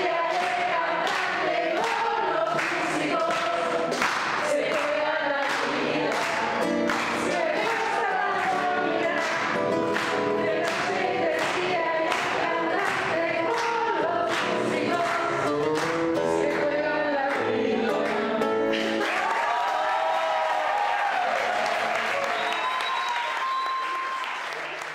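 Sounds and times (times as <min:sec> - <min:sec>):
woman and man singing: 0:00.0 - 0:18.7
strummed acoustic guitar: 0:05.7 - 0:16.8.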